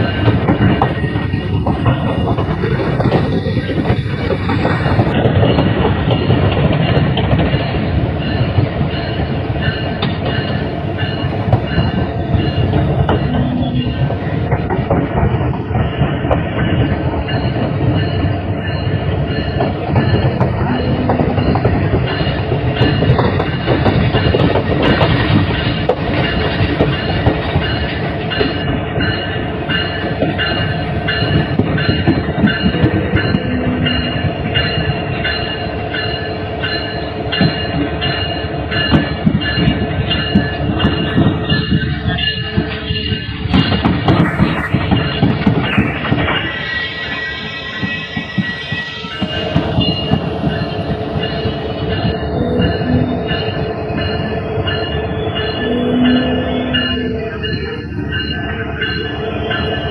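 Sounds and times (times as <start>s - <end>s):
diesel locomotive rumble: 0.0s - 59.9s
wheels clicking over rail joints: 18.8s - 35.4s.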